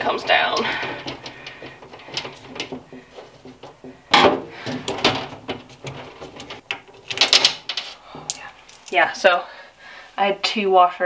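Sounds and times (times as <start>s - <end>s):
knocks on wooden panel: 0.3s - 6.8s.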